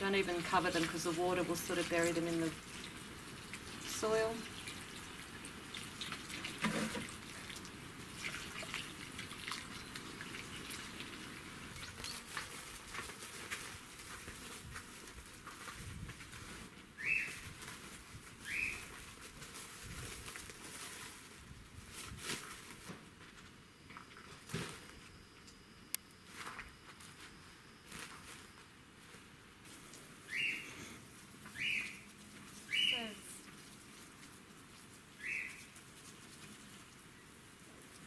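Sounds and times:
faint scuffs and rustles: 12.1s - 25.2s, 26.2s - 36.8s
rising bird chirps: 30.2s - 32.0s, 32.7s - 33.1s.

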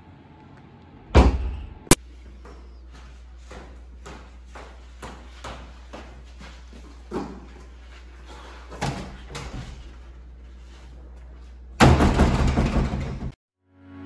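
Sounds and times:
wooden door slamming: 1.2s - 1.8s, 11.8s - 13.4s
light footsteps: 2.1s - 11.8s.

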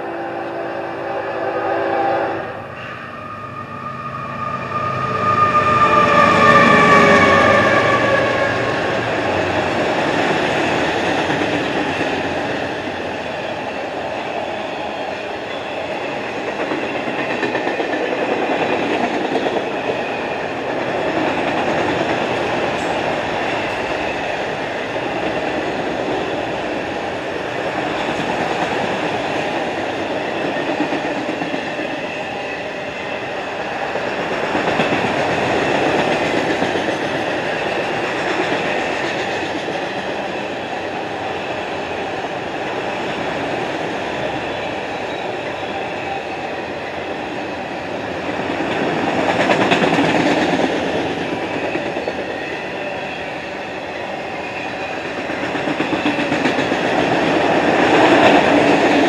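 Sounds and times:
train horn chord: 0.0s - 8.6s
diesel locomotives passing: 0.0s - 59.0s.

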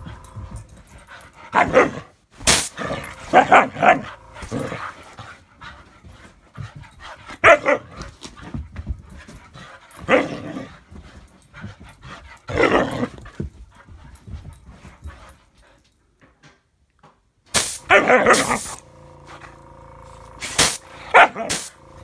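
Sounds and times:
dog barking and yowling: 1.5s - 2.1s, 2.9s - 5.0s, 7.4s - 8.0s, 17.8s - 18.8s, 20.9s - 21.7s
soft bumps: 4.4s - 15.6s.

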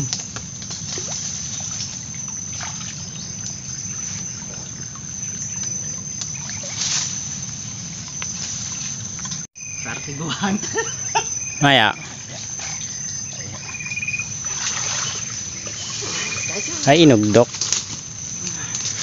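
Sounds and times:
small splashes: 0.0s - 7.3s, 12.3s - 16.9s
water sloshing and trickling: 0.0s - 9.5s, 10.2s - 19.0s
insects chirring: 0.0s - 19.0s.

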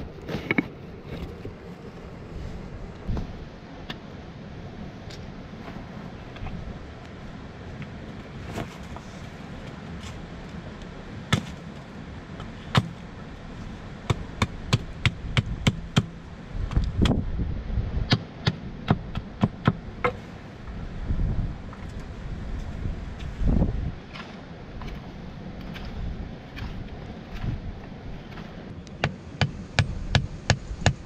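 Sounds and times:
hatchet chopping a stick: 18.1s - 20.2s
low rumble: 18.7s - 29.0s.

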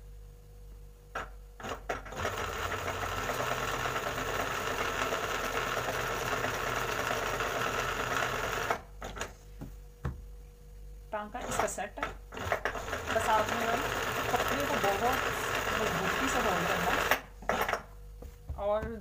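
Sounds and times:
embroidery machine stitching: 1.6s - 9.3s, 11.4s - 17.8s.

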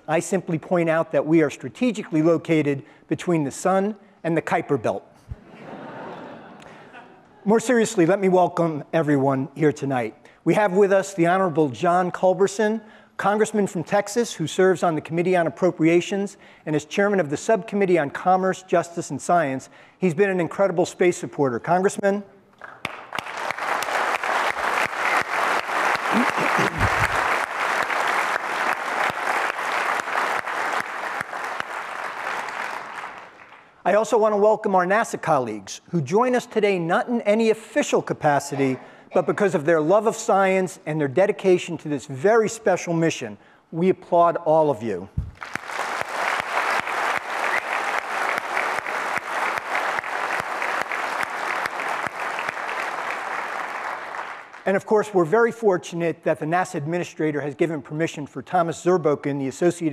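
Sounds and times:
close hand claps: 22.6s - 33.7s, 45.2s - 54.6s
audience applauding: 22.7s - 33.7s, 45.3s - 54.6s.

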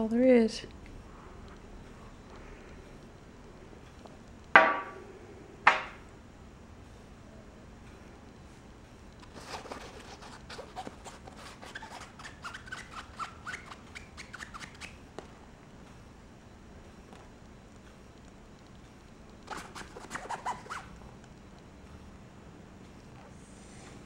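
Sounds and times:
kitten scratching nylon cover: 9.3s - 14.9s, 19.5s - 20.9s
short squeaks: 10.7s - 15.0s, 19.5s - 20.9s.

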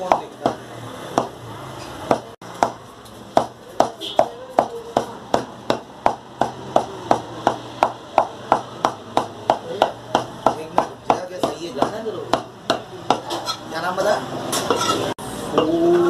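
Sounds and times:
cleaver chopping meat on wood: 0.0s - 1.4s, 2.0s - 13.3s.

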